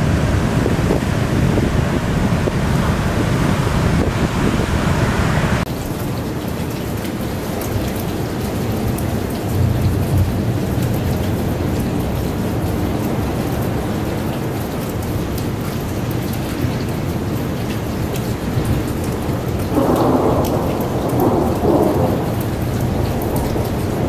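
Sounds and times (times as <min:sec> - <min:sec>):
wind on microphone: 0:00.0 - 0:05.7
low thunder rumble: 0:00.0 - 0:14.8, 0:18.3 - 0:24.0
steady rain: 0:00.0 - 0:24.0.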